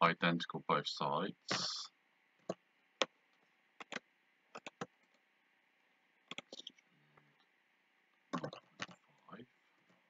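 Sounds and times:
mouse and keyboard clicks: 6.3 - 6.8.

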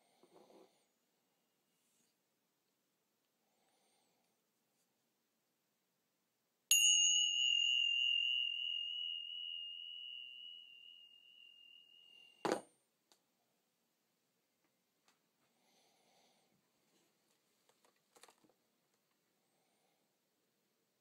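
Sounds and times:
metal rod ringing: 6.7 - 12.6.

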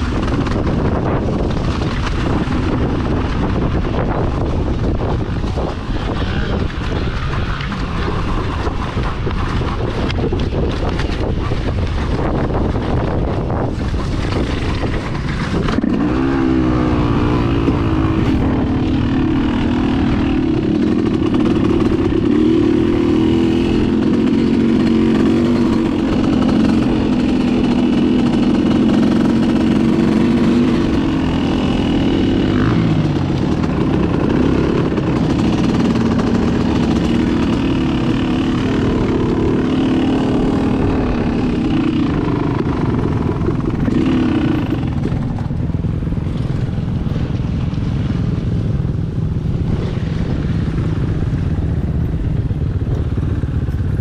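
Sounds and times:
dirt bike engine: 0.0 - 54.0
rushing noisy rumble: 0.0 - 54.0.

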